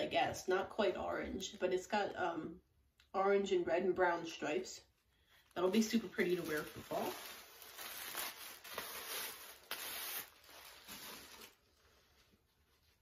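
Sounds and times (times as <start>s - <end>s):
tissue paper rustling: 5.3s - 13.0s.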